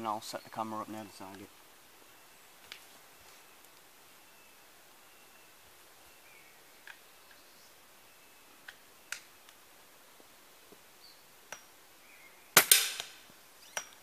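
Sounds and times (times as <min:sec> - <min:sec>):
air rifle shot cracking: 0:12.6 - 0:13.2.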